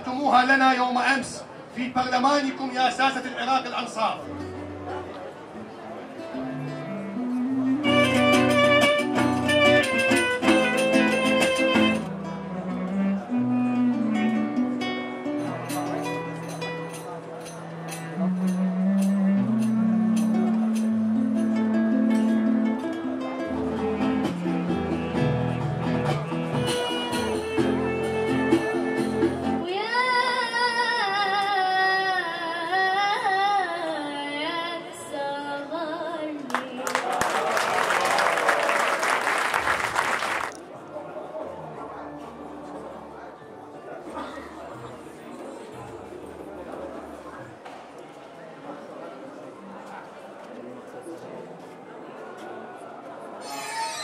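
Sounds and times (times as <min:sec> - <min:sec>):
classical guitar: 0:04.2 - 0:29.7
clarinet melody: 0:06.4 - 0:29.6
girl singing into a microphone: 0:29.6 - 0:36.8.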